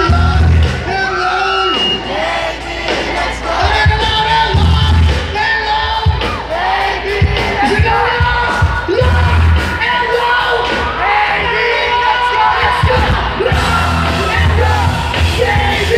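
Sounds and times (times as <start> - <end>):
bass guitar: 0.0 - 2.0, 2.9 - 11.7, 12.6 - 15.9
sharp drum beats: 0.0 - 11.1
person singing: 3.4 - 15.9
electric guitars: 12.5 - 15.9.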